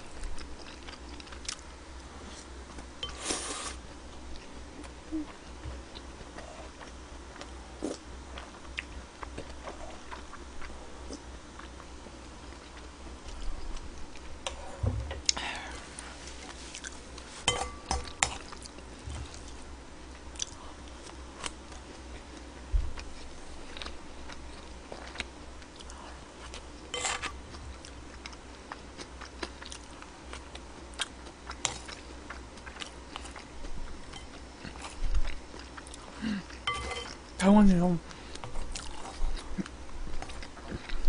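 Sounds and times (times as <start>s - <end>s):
steady low hum: 0.0s - 41.0s
person chewing food: 0.1s - 3.2s, 4.1s - 14.6s, 16.4s - 37.4s, 38.1s - 41.0s
spoon and chopsticks scraping bowl: 17.4s - 18.0s, 26.9s - 27.4s, 36.7s - 37.2s.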